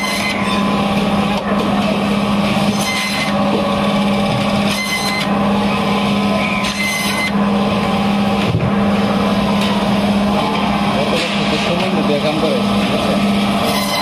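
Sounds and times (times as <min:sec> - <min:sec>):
saw blade whines: 0:00.0 - 0:00.9, 0:02.5 - 0:03.6, 0:04.6 - 0:07.6, 0:13.2 - 0:14.0
band saw humming: 0:00.0 - 0:14.0.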